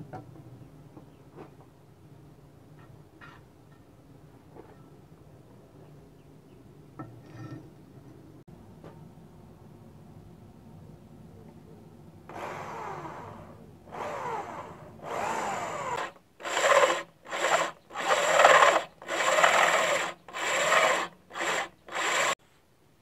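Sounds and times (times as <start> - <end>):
electric drill boring through steel: 12.3 - 22.4.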